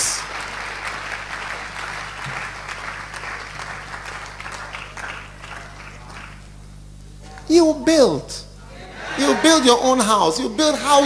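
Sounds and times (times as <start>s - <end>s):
crowd applauding in a hall: 0.0s - 6.9s.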